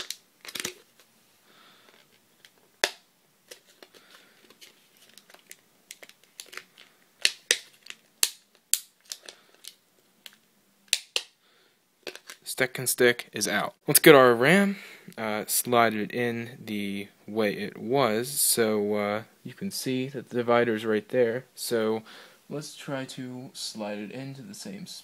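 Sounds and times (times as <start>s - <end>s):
plastic packaging crinkling: 0.0s - 1.1s, 1.8s - 11.3s
sharp plastic snaps: 2.4s - 3.6s, 7.2s - 11.4s.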